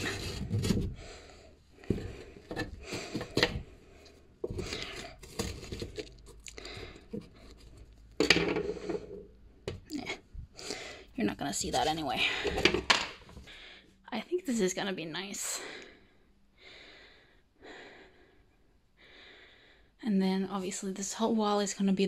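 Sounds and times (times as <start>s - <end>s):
wallpaper rustling and scraping: 0.0s - 1.0s.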